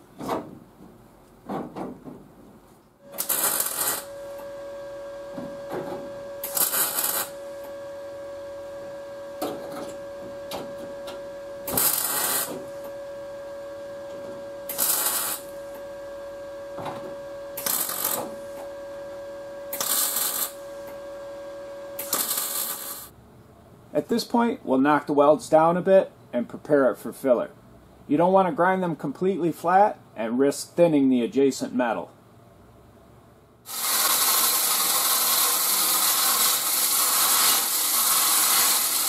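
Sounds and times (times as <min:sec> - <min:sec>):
welding arc bursts: 0:03.0 - 0:04.4, 0:06.4 - 0:07.7, 0:11.6 - 0:12.9, 0:14.6 - 0:15.8, 0:17.6 - 0:18.6, 0:19.7 - 0:20.6, 0:22.0 - 0:23.1, 0:33.7 - 0:39.0
steady welder hum: 0:03.0 - 0:23.2, 0:33.6 - 0:39.0.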